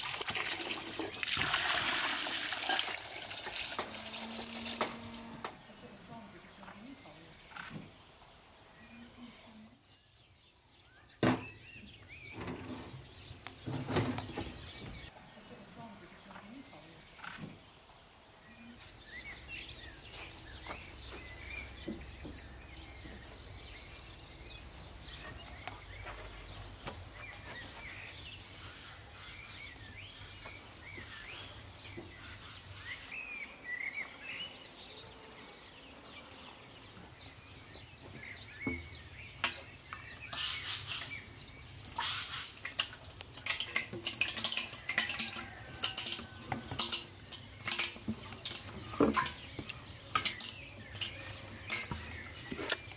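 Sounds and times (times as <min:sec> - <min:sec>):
small birds chirping: 0:04.0 - 0:52.9.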